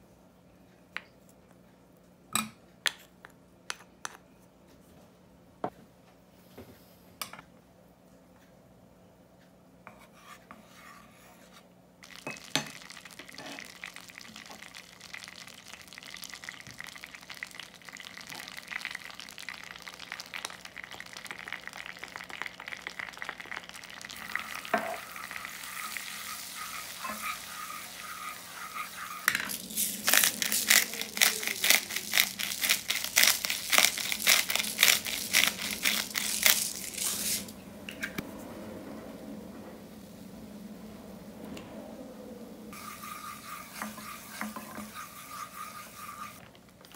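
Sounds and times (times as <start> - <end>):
butter sizzling in saucepan: 12.0 - 37.5, 42.8 - 46.9
mixture crackling and bubbling: 12.0 - 41.7, 42.7 - 46.9
wooden spatula stirring: 23.4 - 37.5, 42.8 - 46.9.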